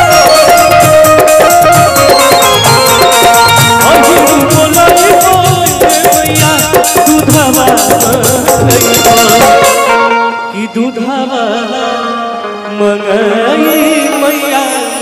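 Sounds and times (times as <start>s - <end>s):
rapid rattling percussion: 0.0s - 10.0s
steady drum beat: 0.0s - 10.1s
held instrument notes: 0.0s - 15.0s
man singing into a microphone: 0.0s - 15.0s.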